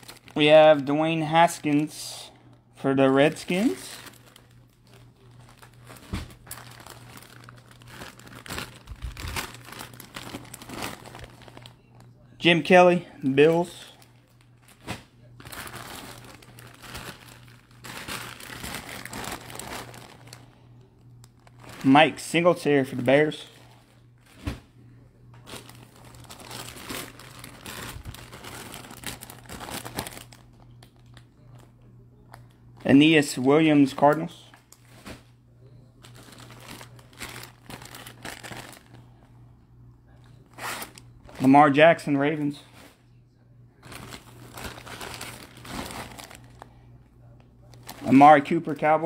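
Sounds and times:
plastic bags crinkling: 0.0 - 24.6, 25.4 - 31.7, 36.0 - 39.3, 43.8 - 46.8, 47.6 - 49.0.

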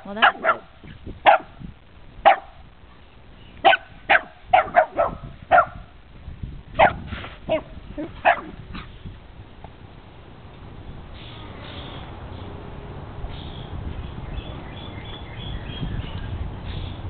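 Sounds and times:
dog barking: 0.2 - 1.6, 2.2 - 2.6, 3.6 - 5.8, 6.8 - 8.6.

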